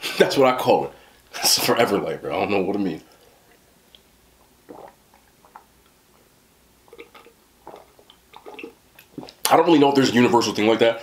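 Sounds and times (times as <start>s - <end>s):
person gulping and swallowing: 3.5s - 6.0s, 6.8s - 9.5s.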